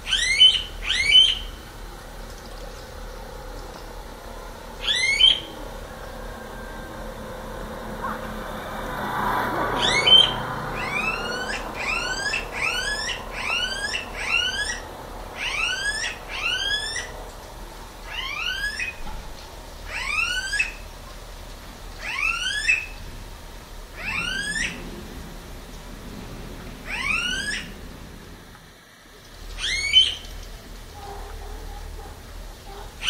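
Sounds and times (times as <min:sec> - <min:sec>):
cuckoo whistled calls: 0:00.0 - 0:01.6, 0:04.8 - 0:07.3, 0:09.8 - 0:17.2, 0:18.1 - 0:19.0, 0:19.9 - 0:20.8, 0:22.0 - 0:23.0, 0:24.0 - 0:24.8, 0:26.9 - 0:27.8, 0:29.5 - 0:30.4.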